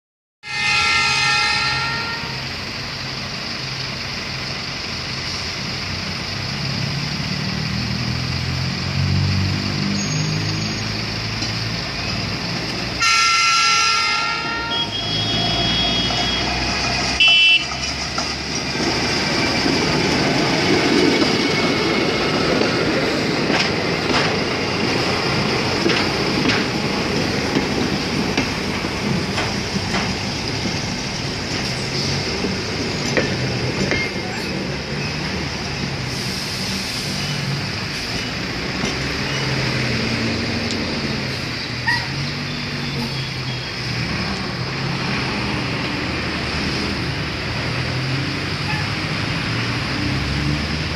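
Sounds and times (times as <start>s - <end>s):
horn blast: 0.4s - 2.5s, 13.0s - 16.6s
short beep: 14.6s - 16.6s.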